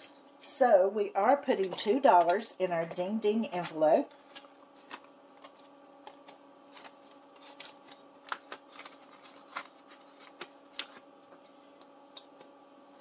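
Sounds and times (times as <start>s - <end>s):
faint steady hum: 0.0s - 13.0s
paper money rustling: 3.6s - 11.4s.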